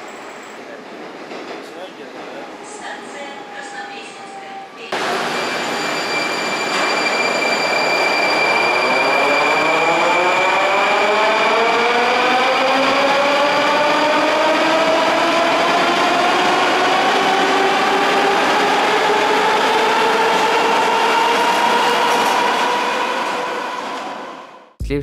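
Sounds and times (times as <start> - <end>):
train wheels on rails: 0.0 - 8.8.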